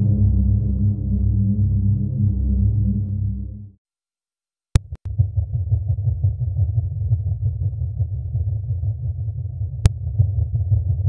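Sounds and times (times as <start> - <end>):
low crackly rumble: 0.0 - 3.7.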